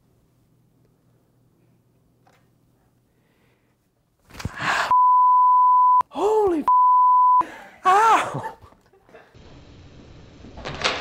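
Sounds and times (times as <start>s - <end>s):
censor bleep: 4.9s - 6.0s, 6.7s - 7.4s
young man yelling: 6.1s - 6.7s, 7.8s - 8.5s.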